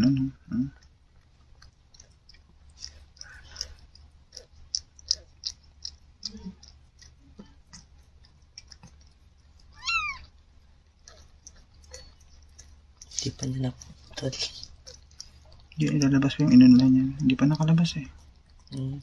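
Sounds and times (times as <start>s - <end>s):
cat licking wetly: 0.8s - 19.0s
kitten mewing: 9.7s - 10.3s.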